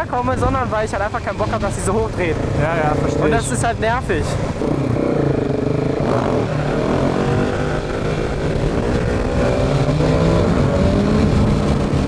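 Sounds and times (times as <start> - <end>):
wind rumble on microphone: 3.6 - 12.0
motorcycle engine accelerating: 4.4 - 12.0.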